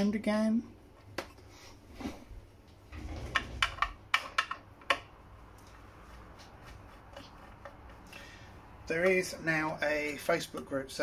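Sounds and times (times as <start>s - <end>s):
sharp clicks and light knocks: 3.3s - 5.8s.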